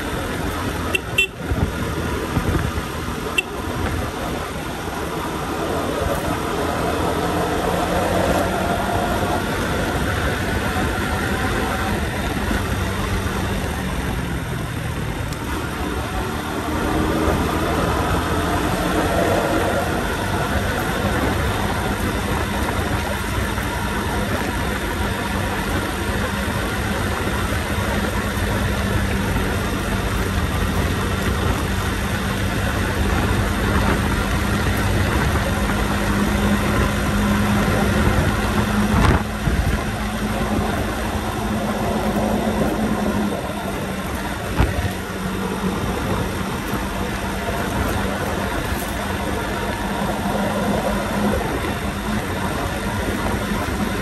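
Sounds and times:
motorbike engine running: 0:00.0 - 0:54.0
wind and road noise: 0:00.0 - 0:54.0.

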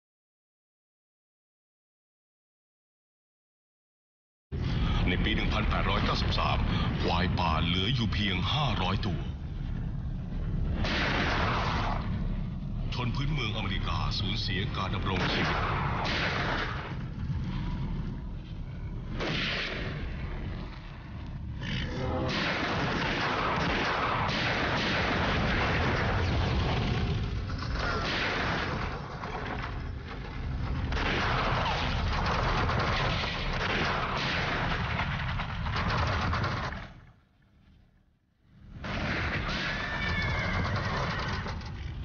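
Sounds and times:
steady low rumble: 0:04.6 - 0:36.7
rifle shots: 0:10.7 - 0:12.1, 0:15.1 - 0:17.1, 0:22.2 - 0:37.0.

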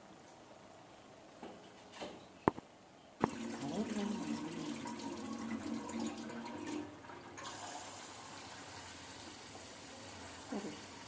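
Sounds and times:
tap water running into bowl: 0:03.2 - 0:09.8.

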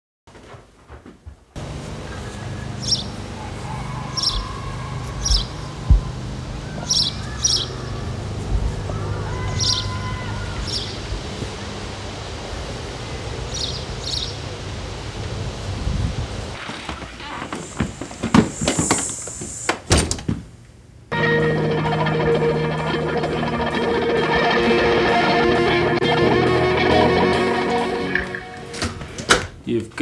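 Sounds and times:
low outdoor hum: 0:00.9 - 0:29.3
birds chirping: 0:02.0 - 0:11.1, 0:13.5 - 0:14.4.

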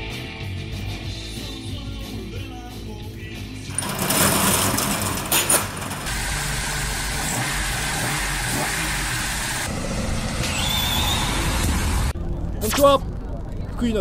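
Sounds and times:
car engine revving: 0:03.7 - 0:12.2.

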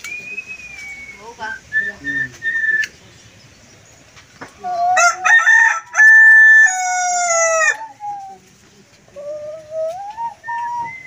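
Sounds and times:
myna whistling: 0:00.0 - 0:03.0, 0:09.1 - 0:11.0.

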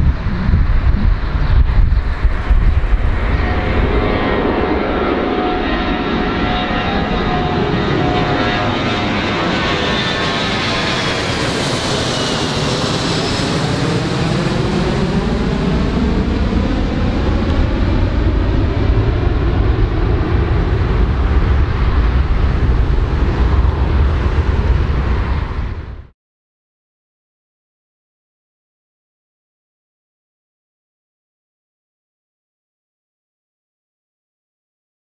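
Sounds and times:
deep rumble: 0:00.0 - 0:26.1
high whine gliding down: 0:00.0 - 0:26.1
jet engines roaring: 0:00.0 - 0:26.1.

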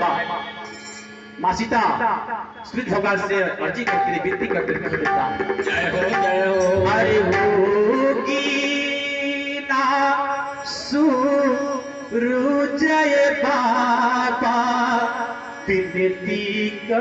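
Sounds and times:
steady accompanying tones: 0:00.0 - 0:17.0
voice chanting long wavering notes: 0:03.9 - 0:17.0.

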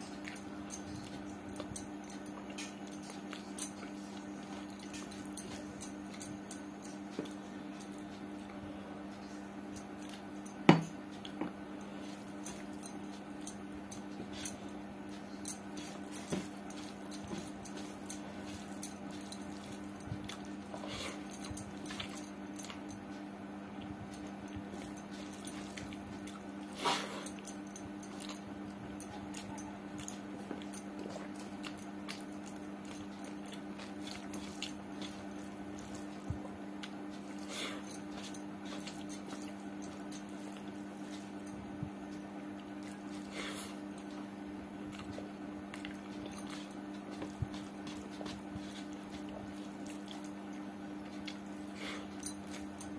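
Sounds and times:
steady low hum: 0:00.0 - 0:52.9
wet chewing and lip-smacking: 0:44.9 - 0:52.9.

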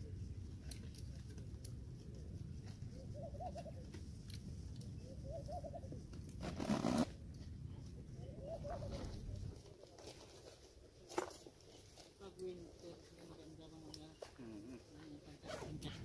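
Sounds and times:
dove cooing: 0:02.9 - 0:03.9, 0:05.0 - 0:06.0, 0:08.2 - 0:09.8.

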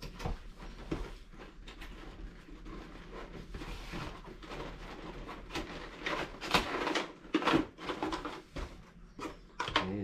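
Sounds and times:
cardboard and plastic crinkling: 0:00.0 - 0:10.0.

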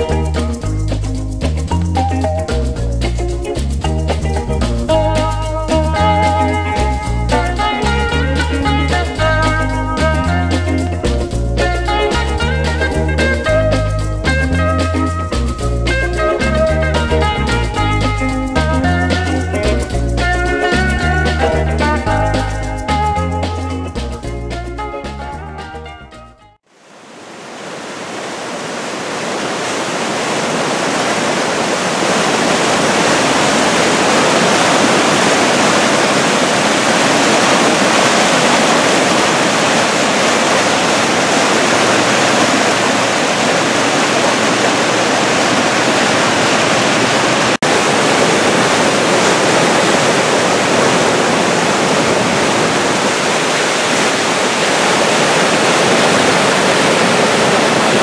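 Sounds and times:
brook rushing in rapids: 0:26.7 - 0:58.0.

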